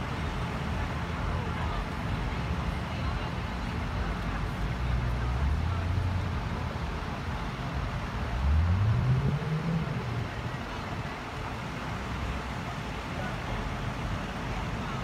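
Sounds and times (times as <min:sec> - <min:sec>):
road traffic passing: 0:00.0 - 0:15.0
vehicle engine speeding up: 0:08.2 - 0:10.5.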